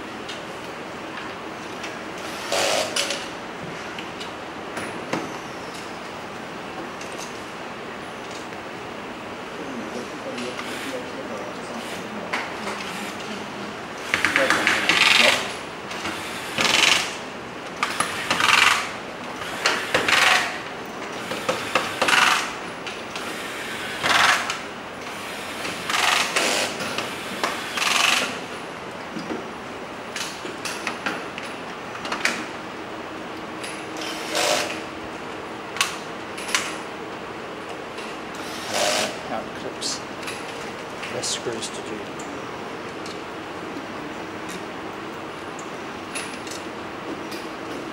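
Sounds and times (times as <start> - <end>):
electric screwdriver driving screws: 34.0 - 34.8.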